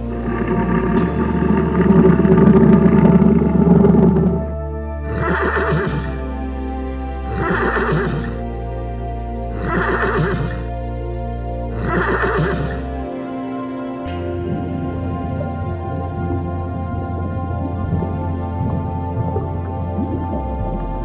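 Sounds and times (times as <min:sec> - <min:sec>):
background music: 0:00.0 - 0:21.0
horse whinnying: 0:05.1 - 0:06.2, 0:07.3 - 0:08.4, 0:09.5 - 0:10.7, 0:11.8 - 0:13.0.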